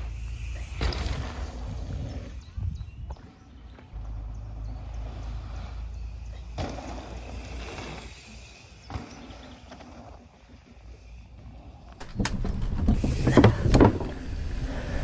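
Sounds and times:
bike tyres crunching over dirt: 0.0 - 15.0
wind on microphone: 1.1 - 3.2.

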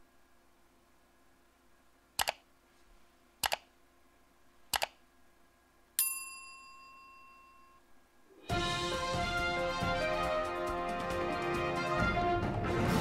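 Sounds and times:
computer mouse double clicks: 2.2 - 2.4, 3.4 - 3.7, 4.7 - 5.0
notification bell ding: 6.0 - 7.8.

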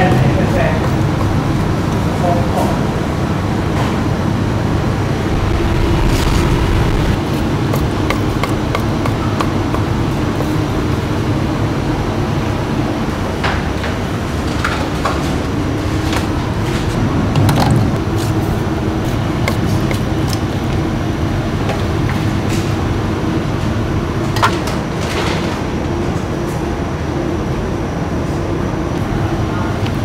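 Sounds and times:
street noise rumble: 2.9 - 7.6.

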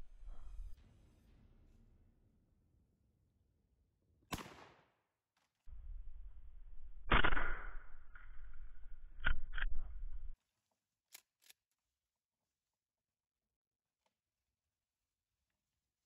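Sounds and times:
shotgun shot with echo: 4.3 - 4.9
low steady rumble: 5.7 - 10.4.

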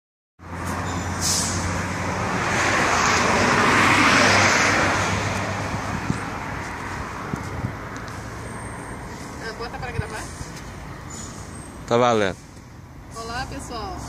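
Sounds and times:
vehicle passing: 0.4 - 14.0.

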